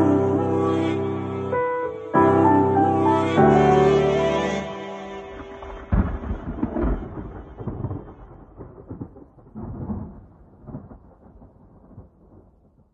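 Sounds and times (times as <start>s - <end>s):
thunder clap and rumbling: 5.4s - 12.9s.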